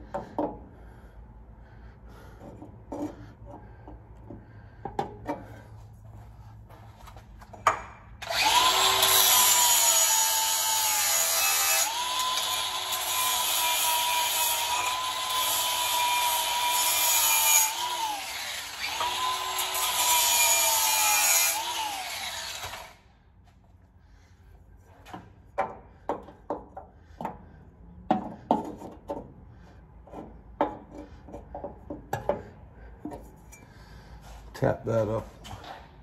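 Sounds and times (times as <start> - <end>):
power grinder whining on metal: 8.2 - 23.0
light metal knocks and taps: 30.1 - 33.2.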